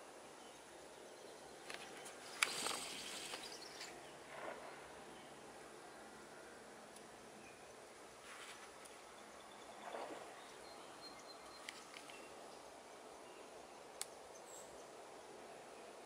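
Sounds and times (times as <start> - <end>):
faint steady hiss: 0.0 - 16.0
faint sharp clicks: 1.6 - 4.0, 11.5 - 12.3, 14.0 - 14.2
brief rustle: 1.6 - 4.6, 8.2 - 8.8.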